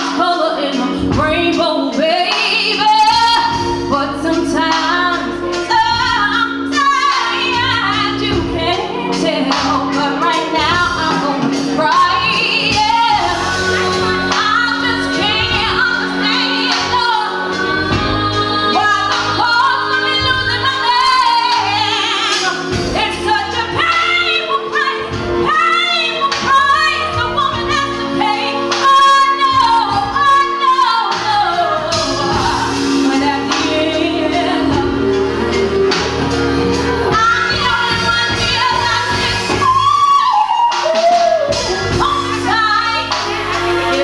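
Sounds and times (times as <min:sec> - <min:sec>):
instrumental backing chords: 0:00.0 - 0:44.0
woman singing: 0:00.0 - 0:44.0.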